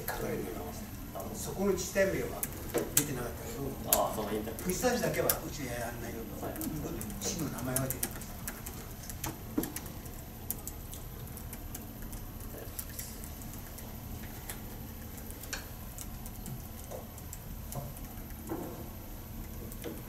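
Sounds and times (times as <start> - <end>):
steady low hum: 0.0 - 20.0
faint clicks and handling sounds: 2.2 - 18.8.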